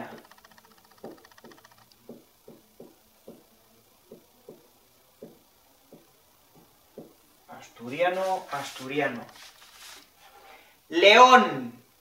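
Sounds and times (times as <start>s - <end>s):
marker writing on whiteboard: 0.0s - 3.5s, 7.9s - 10.1s.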